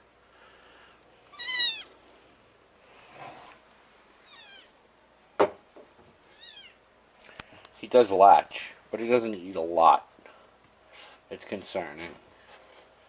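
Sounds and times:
kitten mewing: 1.3s - 1.9s.

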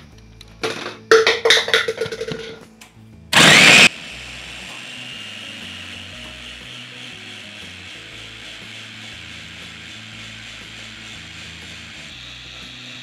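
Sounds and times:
electric chopper motor whirring: 3.3s - 13.0s.

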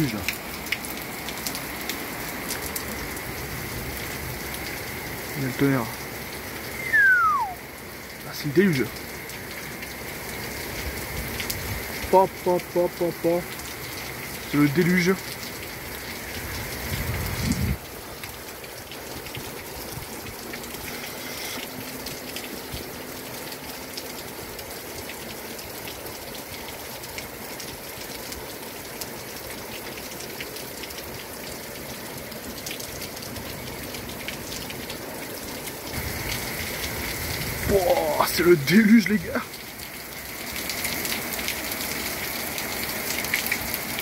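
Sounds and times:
heavy rain hissing: 1.1s - 18.2s, 20.0s - 22.9s, 35.8s - 44.0s.

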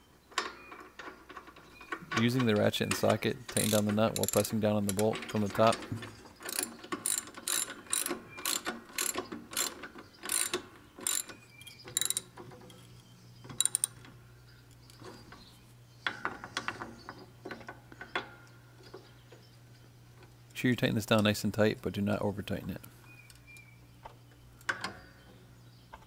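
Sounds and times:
hand ratchet clicking: 2.5s - 5.8s, 6.4s - 12.3s, 13.6s - 14.0s.

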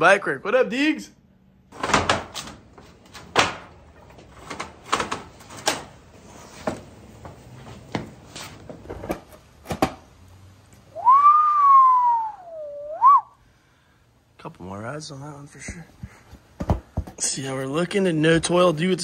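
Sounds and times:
objects knocking and clunking: 1.7s - 10.2s, 15.6s - 17.4s
whistled gliding note: 11.0s - 13.4s.

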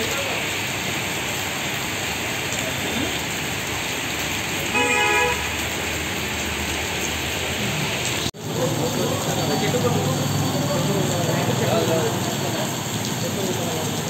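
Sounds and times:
heavy rain on street: 0.0s - 14.0s
traffic on wet road: 0.0s - 14.0s
vehicle horn: 4.7s - 5.7s.

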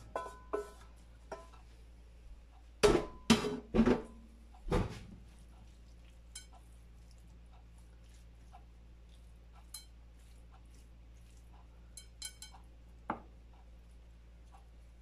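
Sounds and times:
frying pan knocking on baking dish: 0.0s - 1.6s, 2.8s - 5.0s, 13.1s - 13.3s.

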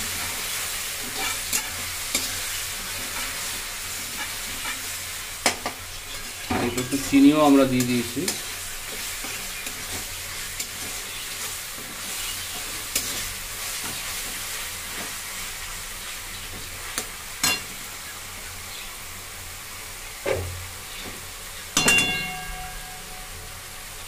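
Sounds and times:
spatula scraping a wok: 0.0s - 5.3s, 6.0s - 15.5s
paste sizzling in oil: 0.0s - 24.0s
loud ringing metal clang: 21.8s - 23.9s.

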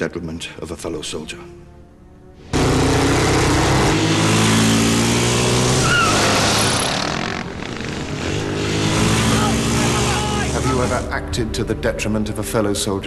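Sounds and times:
motorcycle engine running: 2.6s - 10.8s.

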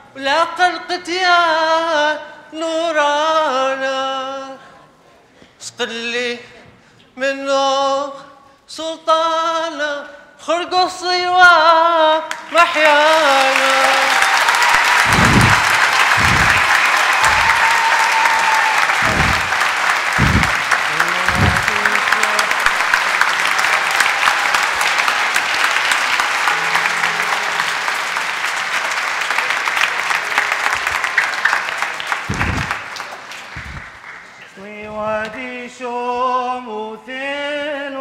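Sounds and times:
congregation applauding: 12.3s - 34.8s
low thumps: 15.0s - 17.8s, 18.9s - 22.5s, 32.3s - 32.9s, 33.6s - 34.0s.

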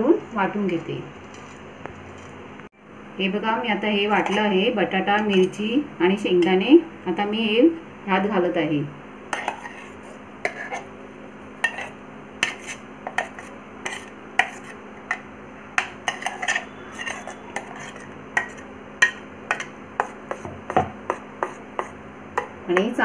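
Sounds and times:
spoon clinking against steel bowl: 15.8s - 19.7s.

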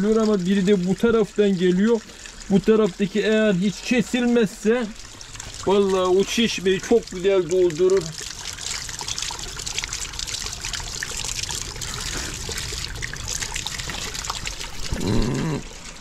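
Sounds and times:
water trickling: 0.0s - 16.0s
water splashing over a hand: 5.6s - 15.8s.

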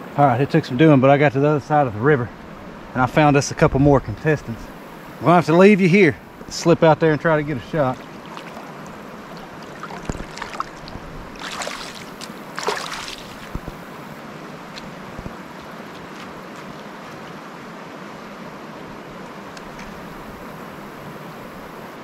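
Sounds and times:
shallow river rushing: 1.6s - 22.0s
splashes in water: 7.7s - 17.5s
footsteps on rock: 8.2s - 13.9s, 14.7s - 17.3s.

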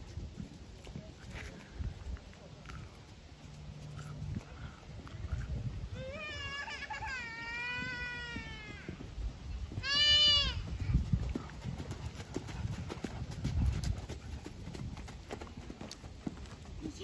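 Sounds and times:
horse hooves cantering on sand: 7.7s - 17.0s
high-pitched bleat-like calls: 9.8s - 10.6s.

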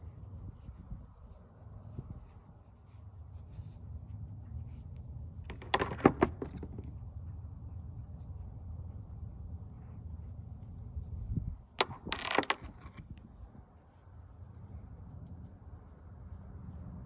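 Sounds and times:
rocks clacking together: 5.5s - 6.9s, 11.8s - 13.2s.

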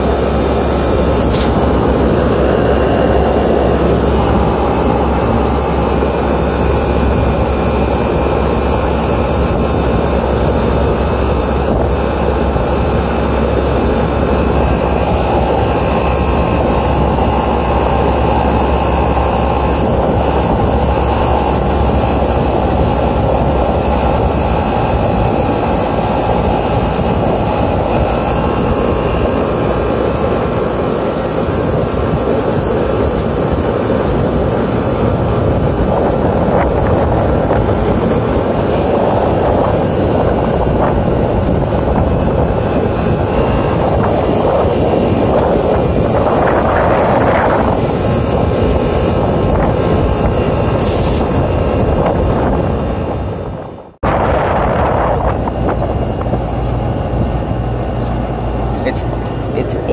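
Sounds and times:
compressor hum: 0.0s - 59.9s
condenser fan rushing air: 0.0s - 59.9s.

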